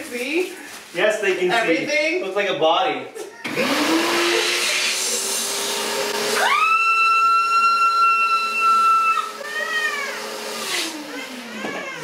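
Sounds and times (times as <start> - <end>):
vacuum cleaner running: 3.5 - 12.0.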